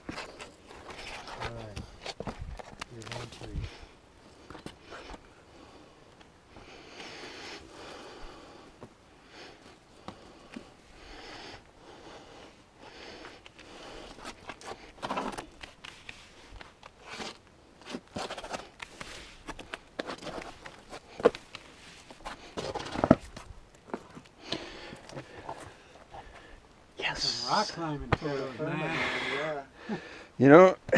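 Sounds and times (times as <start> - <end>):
scuffs and taps on rock: 13.4 - 25.7
scraping on rock: 13.6 - 26.5.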